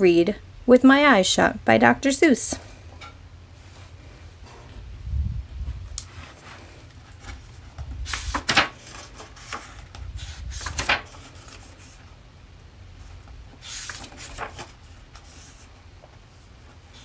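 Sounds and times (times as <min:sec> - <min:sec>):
book pages rustling and flapping: 0:06.0 - 0:12.1, 0:13.0 - 0:17.0.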